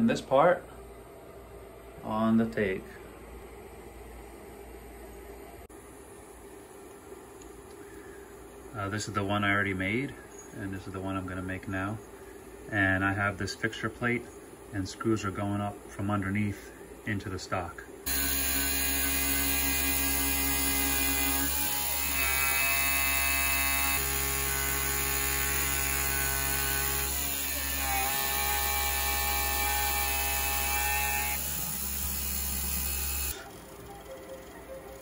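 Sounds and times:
milling machine whining tones: 18.1 - 35.0
spindle motor hum: 18.1 - 35.0.

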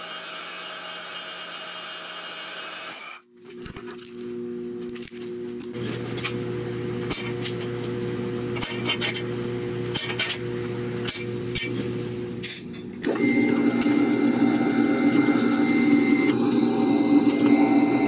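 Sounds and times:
drill press boring into steel: 0.0 - 3.2
machine hum: 3.3 - 18.0.

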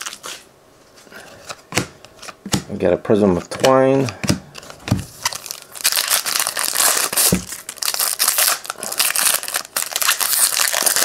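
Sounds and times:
foil wrapper tearing and crinkling: 5.2 - 11.0.

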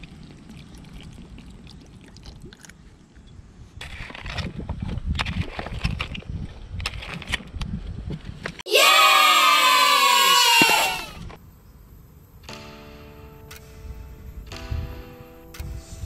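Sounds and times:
wind rumbling on microphone: 3.2 - 8.6.

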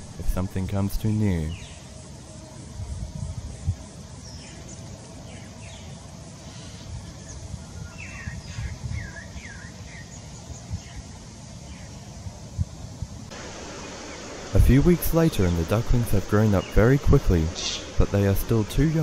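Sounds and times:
birds chirping: 0.0 - 2.7, 3.5 - 12.1, 13.3 - 19.0
low outdoor rumble: 13.3 - 19.0.

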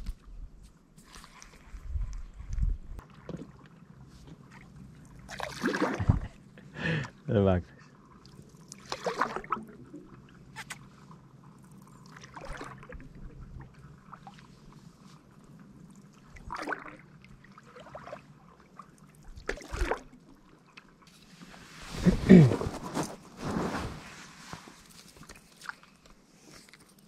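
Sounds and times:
water splashing around kayak: 3.0 - 6.4, 8.2 - 27.0.

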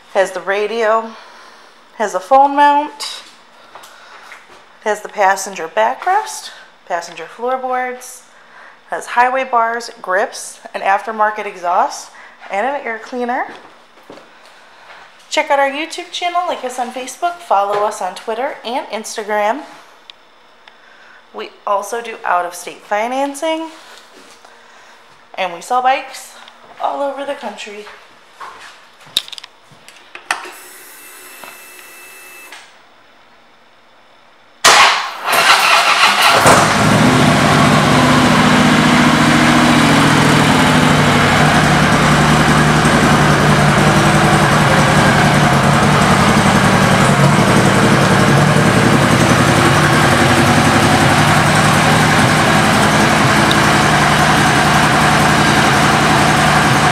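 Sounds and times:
motorcycle engine starting and idling: 34.6 - 56.9.

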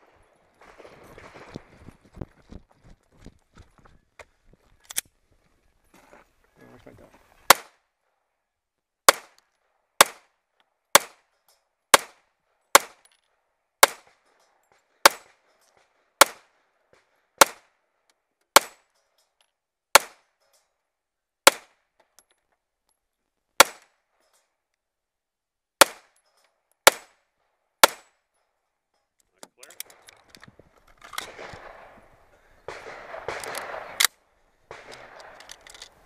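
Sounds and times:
handgun shots: 7.5 - 7.8, 9.1 - 9.4, 11.0 - 11.2, 12.8 - 13.0, 13.8 - 14.1, 16.2 - 16.4, 20.0 - 20.2, 21.5 - 21.8, 23.6 - 23.9, 25.8 - 26.2, 26.8 - 27.2, 27.8 - 28.1, 32.7 - 34.1.

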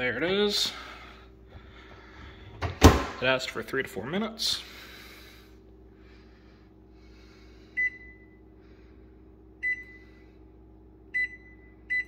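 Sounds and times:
faint steady hum: 0.0 - 12.0
microwave keypad beeps: 7.8 - 8.4, 9.6 - 10.0, 11.1 - 12.0.

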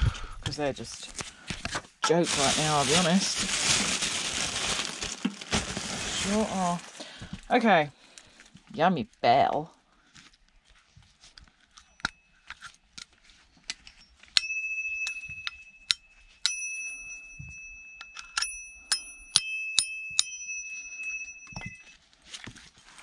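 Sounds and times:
small metal bell ringing: 13.9 - 22.0.

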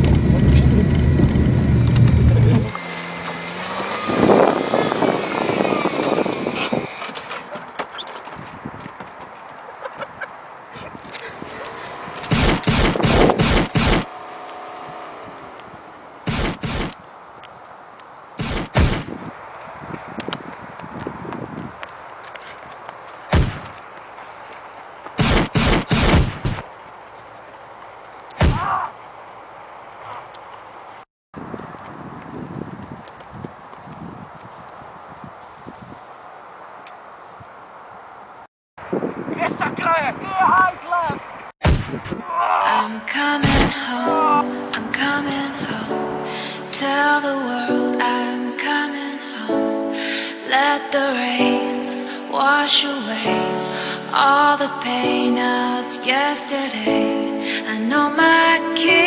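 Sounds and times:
car engine running outside: 0.0 - 7.8, 11.1 - 17.1
car engine and road rumble: 0.0 - 35.4
gunshots: 12.3 - 14.1, 16.3 - 17.0, 18.4 - 19.2, 23.3 - 23.7, 25.2 - 26.6, 28.4 - 28.7, 41.6 - 42.2.

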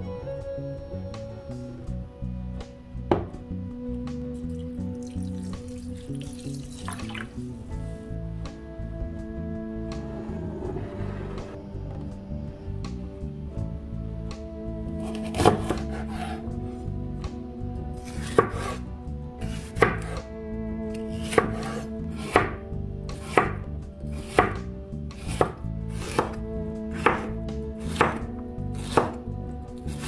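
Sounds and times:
knife knocking on cutting board: 3.1 - 3.4.

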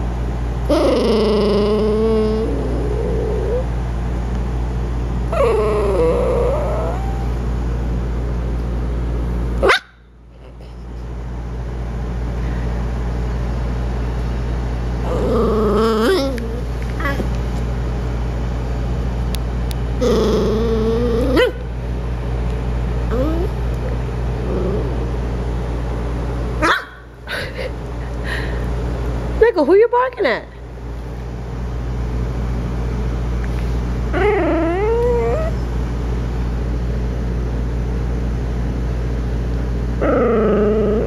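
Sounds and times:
steady low hum: 0.0 - 41.0
puppy growling: 0.6 - 3.8, 5.3 - 7.4, 15.0 - 17.5, 20.0 - 21.7, 23.0 - 25.7, 34.1 - 35.6, 39.9 - 41.0.

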